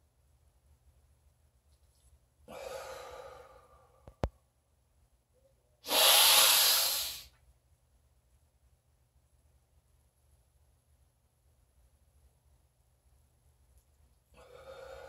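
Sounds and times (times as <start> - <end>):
man breathing deeply: 2.5 - 4.2, 5.8 - 7.3, 14.4 - 15.0.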